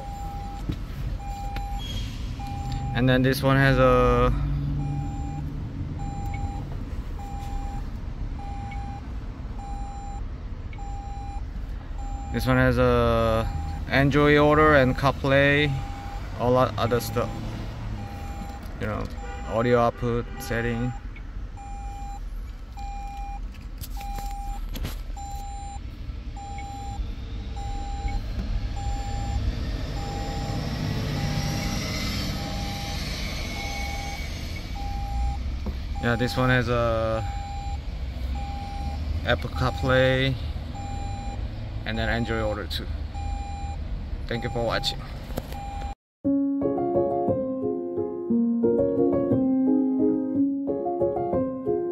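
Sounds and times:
electronic warning beep: 0.0s - 3.2s, 4.8s - 11.4s, 12.0s - 13.9s, 14.7s - 18.6s, 21.6s - 22.2s, 22.8s - 23.4s, 24.0s - 24.6s, 25.2s - 25.8s, 26.4s - 27.0s, 27.6s - 29.4s, 30.0s - 35.4s, 36.0s - 36.6s, 37.2s - 37.8s, 38.4s - 39.0s, 39.6s - 40.0s, 40.8s - 41.4s, 43.2s - 43.8s, 45.6s - 46.0s
low vehicle rumble: 0.0s - 42.0s
low steady rumble: 20.7s - 39.0s.

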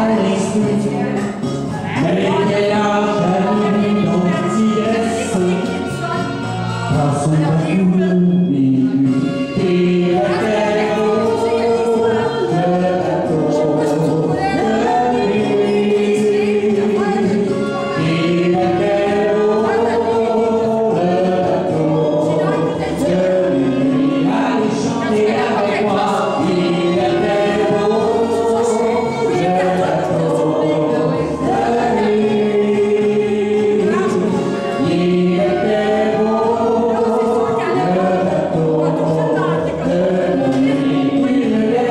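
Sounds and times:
man and woman singing duet: 0.0s - 41.9s
recorded backing track: 0.0s - 41.9s.

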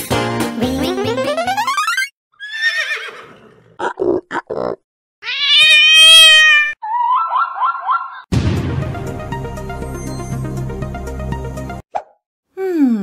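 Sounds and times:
bouncy music: 0.0s - 2.1s
horse whinnying: 2.4s - 3.8s, 5.2s - 7.3s
cat meowing: 5.2s - 7.4s.

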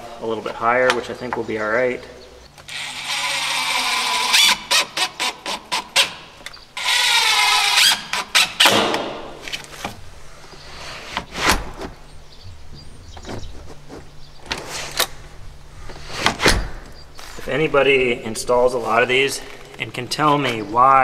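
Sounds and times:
cordless drill motor whining: 2.6s - 8.6s.

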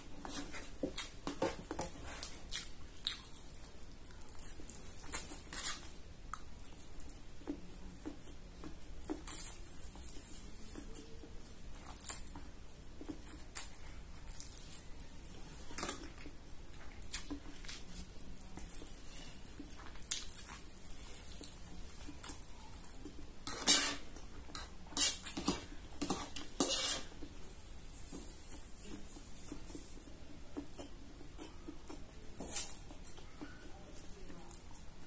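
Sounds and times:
wet chewing and mouth smacking: 0.4s - 9.7s, 13.0s - 23.3s.

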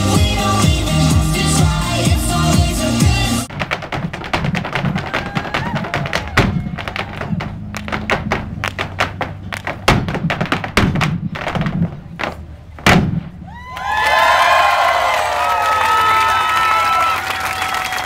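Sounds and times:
hard shoes tapping on stage: 3.5s - 13.4s.

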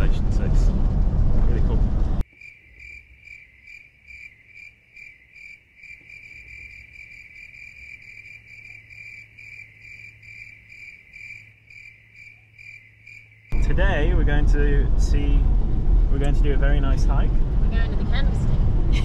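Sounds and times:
cricket chirping: 2.2s - 13.6s.

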